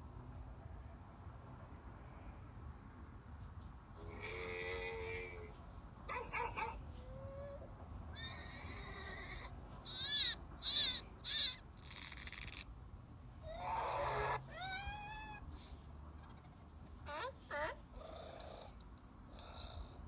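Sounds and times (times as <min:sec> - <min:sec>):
animal calls from a speaker: 0:04.0 - 0:05.6, 0:08.2 - 0:12.6, 0:13.4 - 0:15.4.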